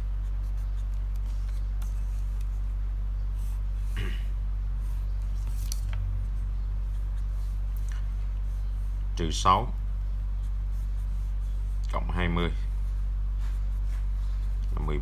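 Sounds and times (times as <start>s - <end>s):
pen scratching on paper: 0.0s - 4.0s, 6.3s - 9.4s, 10.1s - 12.1s
steady low hum: 0.0s - 15.0s.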